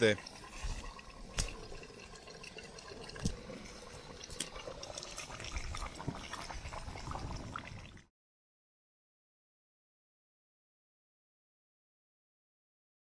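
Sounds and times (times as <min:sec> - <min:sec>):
wood fire hissing: 0:00.4 - 0:01.9, 0:02.8 - 0:07.9
fire pops and snaps: 0:01.3 - 0:01.7, 0:03.2 - 0:03.4.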